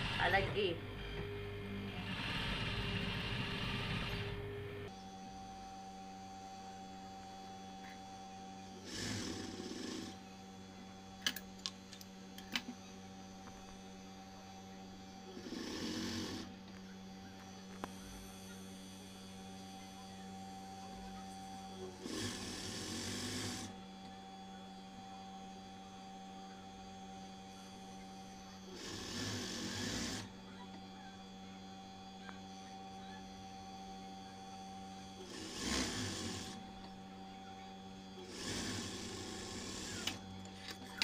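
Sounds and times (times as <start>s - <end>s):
sewing machine motor hum: 0.0s - 5.0s, 8.6s - 10.4s, 15.0s - 16.8s, 17.4s - 24.1s, 27.1s - 30.9s, 33.8s - 41.0s.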